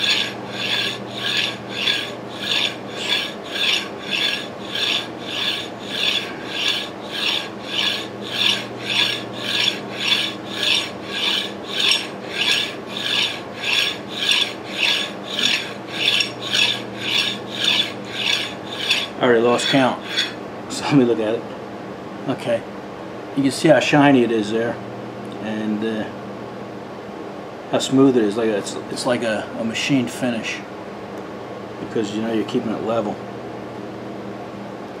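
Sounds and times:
metal rod rasping on file: 0:00.0 - 0:20.4.

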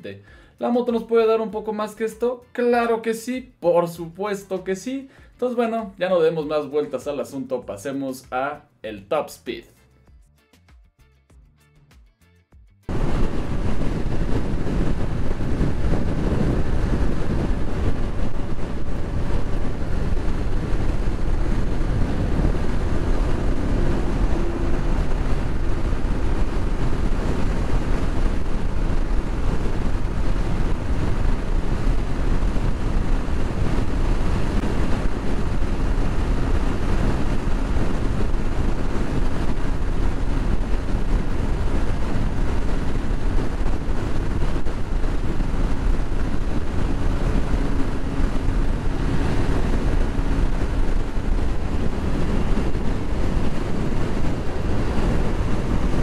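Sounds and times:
motorcycle engine at full throttle: 0:12.9 - 0:56.0
wind rush on microphone: 0:12.9 - 0:56.0.

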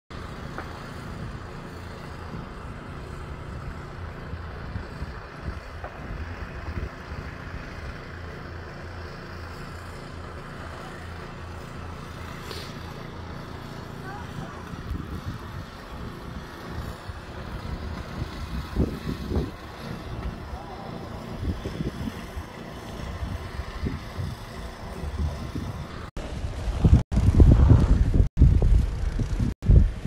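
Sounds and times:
low outdoor rumble: 0:00.1 - 0:30.0
wind buffeting microphone: 0:02.2 - 0:08.1, 0:14.0 - 0:30.0.

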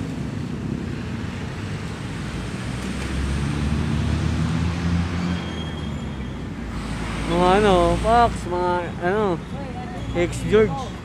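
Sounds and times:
road traffic rumble: 0:00.0 - 0:11.0.

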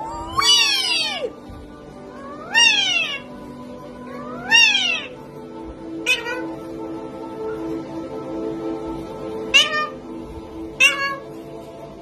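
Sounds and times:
cat meowing: 0:00.0 - 0:01.4, 0:02.2 - 0:03.3, 0:04.1 - 0:05.2, 0:06.0 - 0:06.5, 0:09.5 - 0:10.0, 0:10.8 - 0:11.3
quiet background music: 0:00.0 - 0:12.0.

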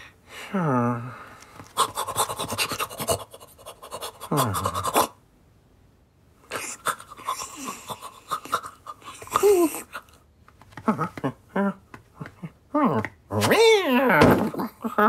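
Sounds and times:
cartoon cat panting: 0:01.7 - 0:05.2, 0:06.6 - 0:10.0.

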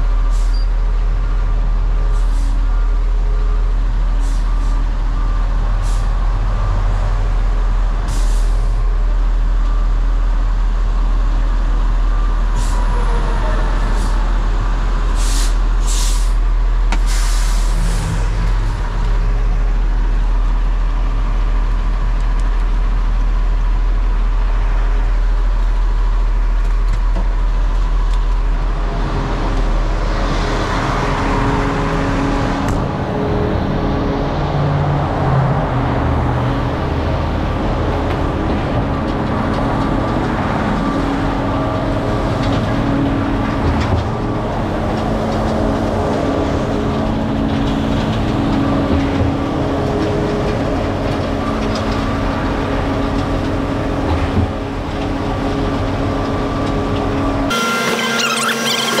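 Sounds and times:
diesel truck engine humming: 0:00.0 - 0:59.0
air brake hisses: 0:15.2 - 0:16.4, 0:17.0 - 0:18.1.

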